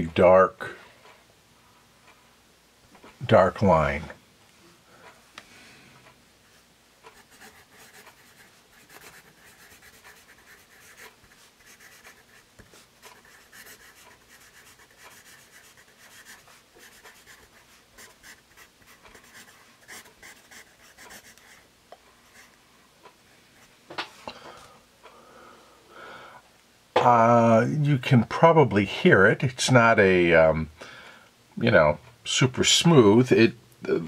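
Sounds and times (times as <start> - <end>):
pencil scratching on paper: 7.1 - 21.6, 22.3 - 22.6.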